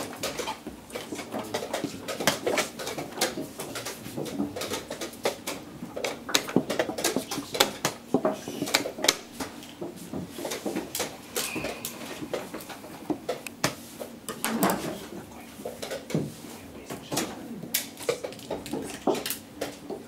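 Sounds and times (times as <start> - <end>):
chess pieces knocking on boards: 0.0 - 13.8.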